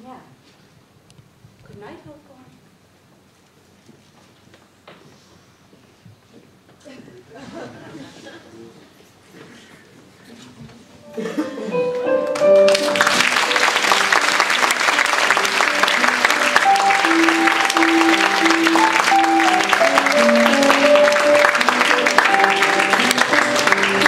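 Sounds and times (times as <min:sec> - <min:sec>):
slow instrumental music: 0:11.0 - 0:24.0
audience applauding: 0:11.8 - 0:24.0.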